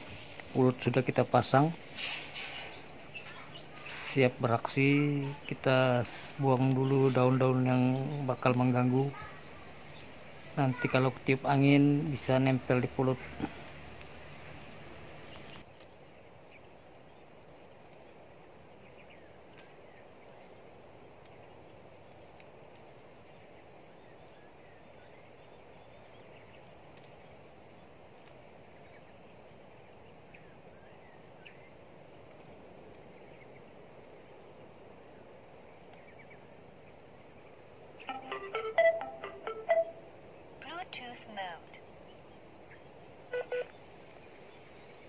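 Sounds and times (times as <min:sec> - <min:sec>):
insects chirring: 0:00.0 - 0:45.0
faint bird chirps: 0:02.5 - 0:15.6, 0:38.0 - 0:45.0.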